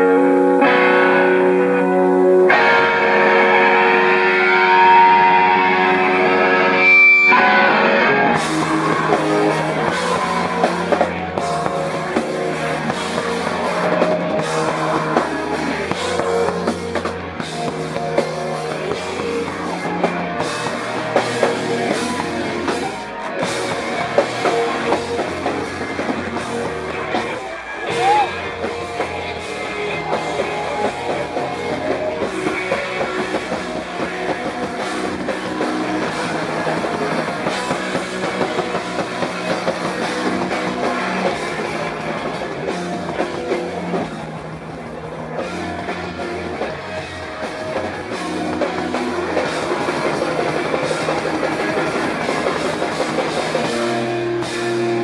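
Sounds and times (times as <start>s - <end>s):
held guitar chord ringing: 0.0s - 43.9s
live rock band playing: 0.0s - 55.0s.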